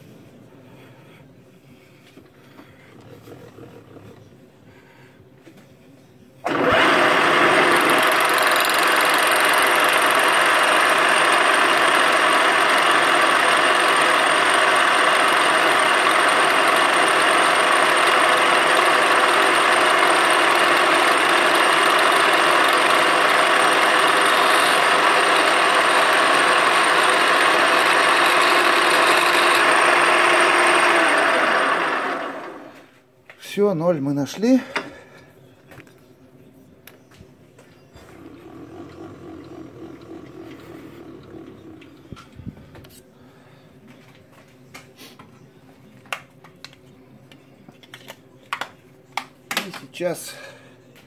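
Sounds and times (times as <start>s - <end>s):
milling machine spindle running: 6.5s - 32.8s, 38.1s - 42.2s.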